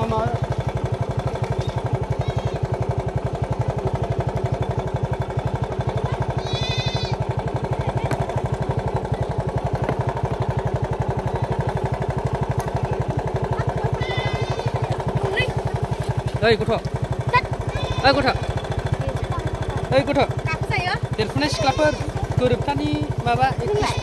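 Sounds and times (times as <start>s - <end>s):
motorbike engine idling: 0.0s - 24.0s.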